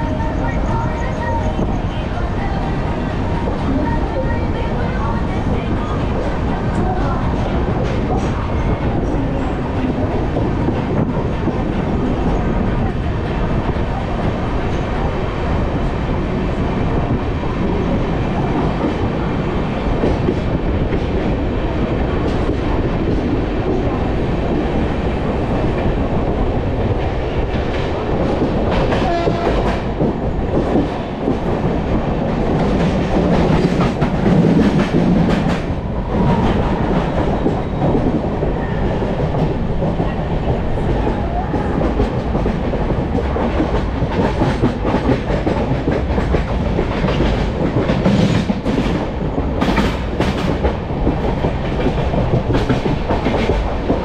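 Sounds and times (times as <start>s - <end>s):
train wheels rumbling on rail: 0.0s - 54.0s
wind rush: 0.0s - 54.0s.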